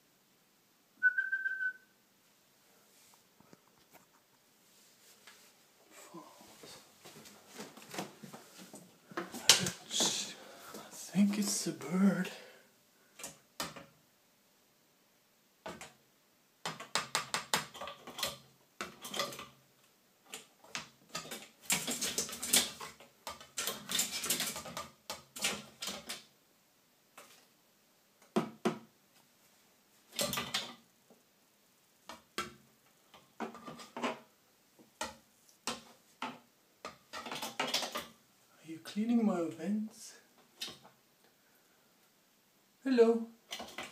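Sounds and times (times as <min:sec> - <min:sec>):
bird scratching and tapping in vent: 0:16.7 - 0:19.5.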